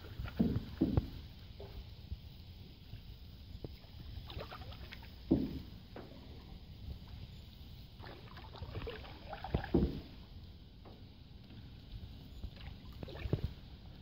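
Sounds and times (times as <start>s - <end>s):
light water splashes: 0.0s - 14.0s
paddle knocks on boat hull: 0.2s - 1.2s, 5.3s - 5.7s, 9.6s - 10.1s.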